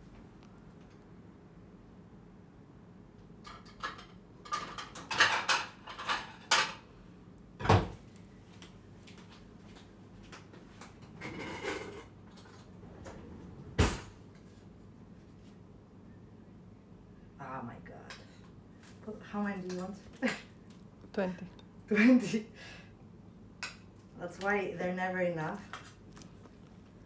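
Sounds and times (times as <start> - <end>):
dishes and cutlery clattering: 3.5 - 6.8, 11.2 - 12.5.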